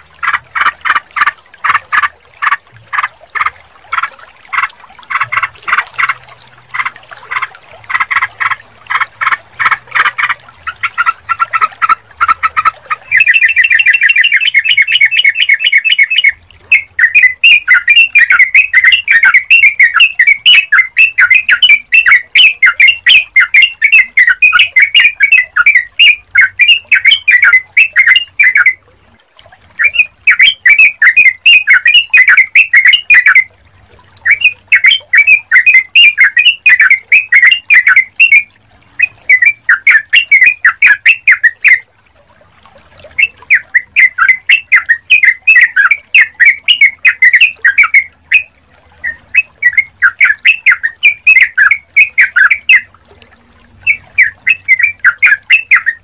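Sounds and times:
bird chattering calls: 0:00.2 - 0:28.8, 0:29.8 - 0:33.4, 0:43.2 - 0:52.8, 0:53.9 - 0:56.0.

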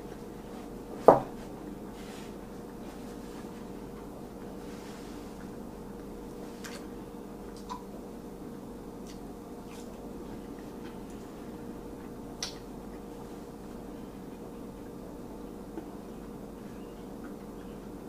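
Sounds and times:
steady low hum: 0:00.0 - 0:18.0
chewing fries: 0:02.4 - 0:08.0, 0:08.9 - 0:15.1.

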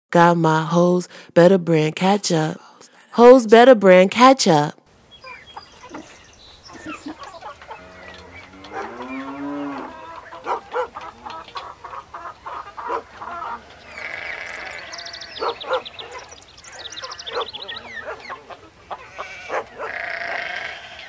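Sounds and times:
high chirping calls: 0:05.0 - 0:19.4
chickens clucking: 0:05.2 - 0:21.0
cow mooing: 0:07.6 - 0:10.1, 0:13.6 - 0:15.6, 0:19.1 - 0:21.0.

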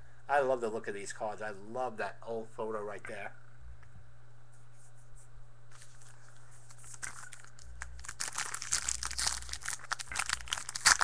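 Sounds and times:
foil wrapper crinkling: 0:05.7 - 0:11.0.

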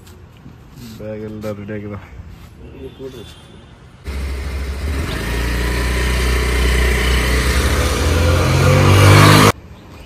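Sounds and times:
scooter engine revving: 0:04.1 - 0:09.6.

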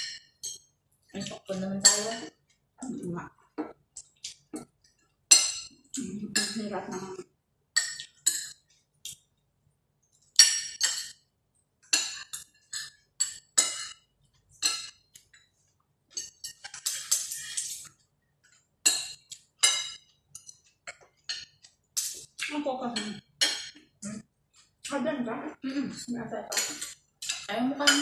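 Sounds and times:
cutlery clinking on plates: 0:05.3 - 0:05.8, 0:07.8 - 0:08.7, 0:10.3 - 0:11.2, 0:11.9 - 0:15.3, 0:16.1 - 0:17.6, 0:18.9 - 0:22.3, 0:23.0 - 0:23.9, 0:26.5 - 0:28.0.

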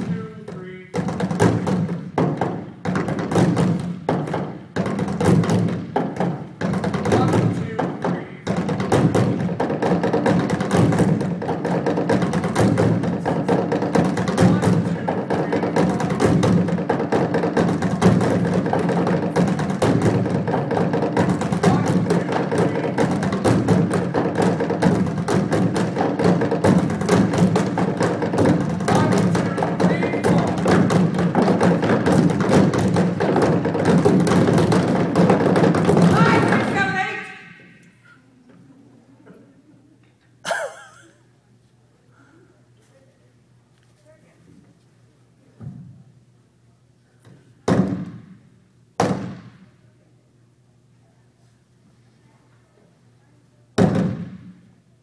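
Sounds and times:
drumming on trash cans: 0:00.0 - 0:37.6, 0:47.6 - 0:48.4, 0:53.8 - 0:54.7.

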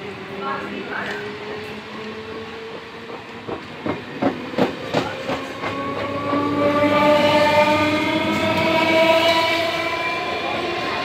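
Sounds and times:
train wheels clacking over rail joints: 0:03.0 - 0:06.2.

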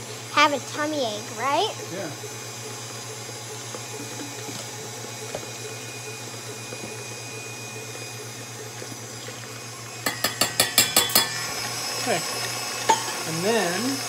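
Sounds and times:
electric mixer humming: 0:00.0 - 0:14.0.

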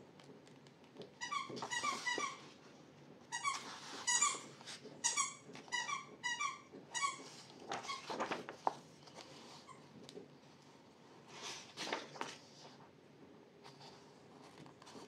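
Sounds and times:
rubber squeaky toy squeaking: 0:03.3 - 0:07.2
paper page turning: 0:07.3 - 0:09.6, 0:11.3 - 0:12.8.

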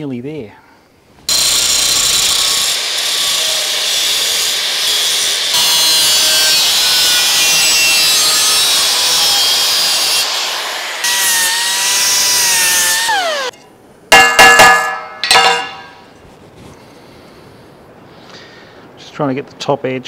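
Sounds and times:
grinder motor whine: 0:01.3 - 0:13.6
angle grinder cutting metal: 0:01.3 - 0:15.9.

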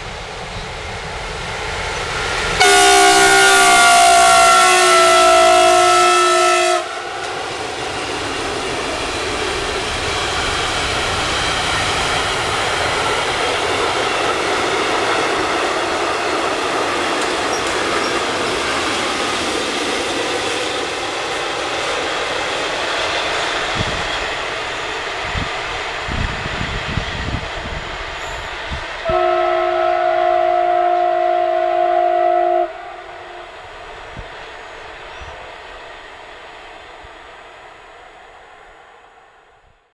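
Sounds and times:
locomotive horn blast: 0:02.6 - 0:07.1, 0:29.0 - 0:33.5.

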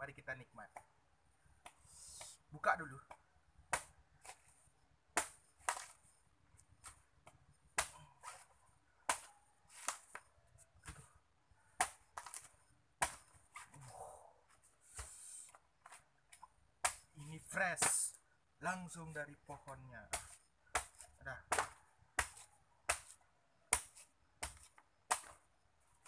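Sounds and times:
machete chopping coconut husk: 0:03.0 - 0:04.5, 0:05.1 - 0:06.0, 0:06.8 - 0:11.0, 0:11.8 - 0:13.7, 0:14.8 - 0:18.2, 0:19.6 - 0:25.5.

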